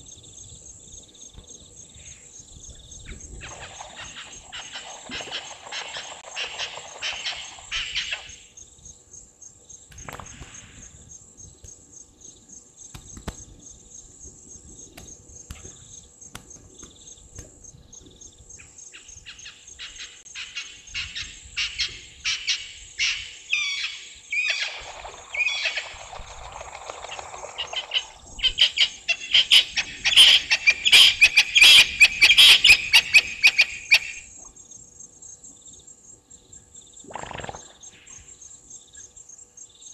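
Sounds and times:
high insect trill: 0.0s - 39.9s
waterbirds calling: 3.0s - 8.6s, 18.0s - 34.6s.

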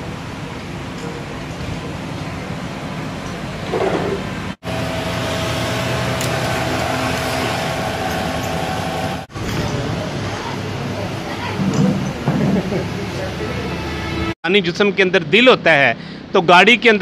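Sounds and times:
machine shop motors running: 3.2s - 9.6s
cylinder boring machine whine: 4.6s - 9.3s.

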